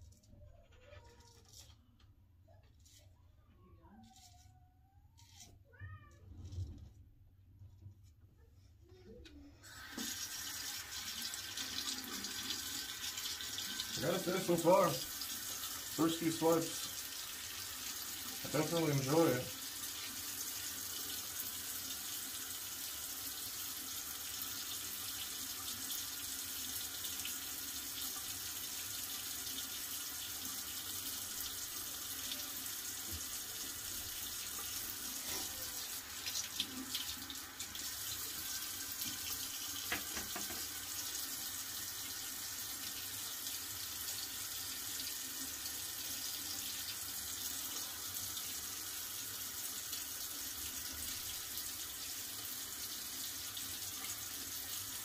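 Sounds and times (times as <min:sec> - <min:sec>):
tap running into sink: 0:09.8 - 0:10.4, 0:39.0 - 0:40.9.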